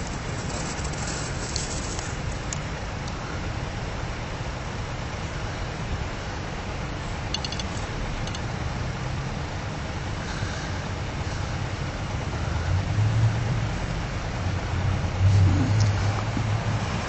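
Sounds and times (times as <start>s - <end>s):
hiss: 0.0s - 2.4s
distant road traffic rumble: 0.0s - 17.0s.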